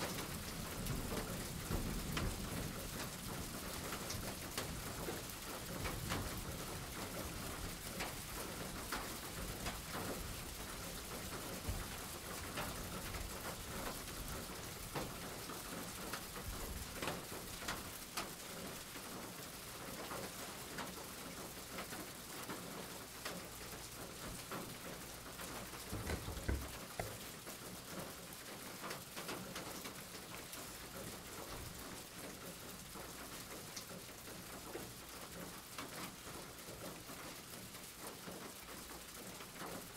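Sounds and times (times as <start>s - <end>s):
steady rain falling: 0.0s - 39.9s
soft low thump: 25.9s - 27.2s.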